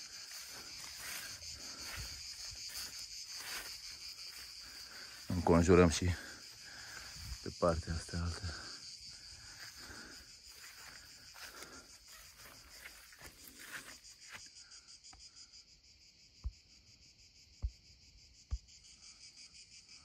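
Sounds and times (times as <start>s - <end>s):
footsteps swishing through dry grass: 0.0s - 5.4s, 10.5s - 14.4s
insect chorus: 0.0s - 20.0s.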